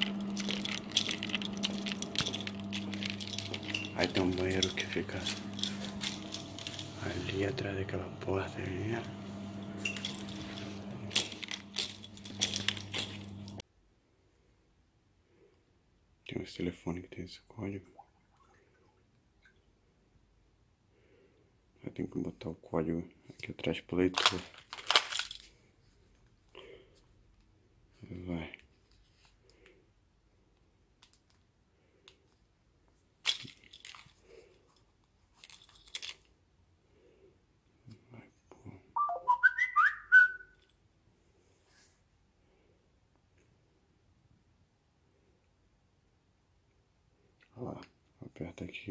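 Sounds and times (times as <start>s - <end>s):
metallic clinks and clicks: 0.0s - 7.1s, 9.8s - 13.6s
crackling handling rustles: 0.0s - 7.5s, 9.1s - 13.6s, 24.0s - 26.4s, 33.1s - 36.4s
low electrical hum: 0.0s - 18.0s.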